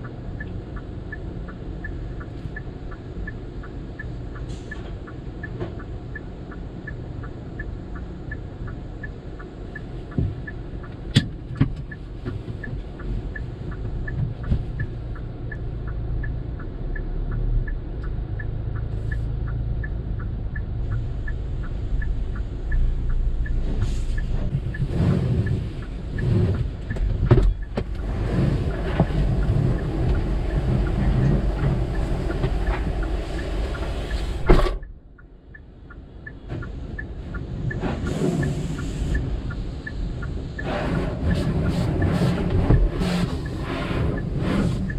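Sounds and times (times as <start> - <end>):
light ticking: 0.0 - 44.9
low engine rumble: 0.0 - 44.9
car wash water rushing: 21.2 - 34.8, 36.6 - 44.9.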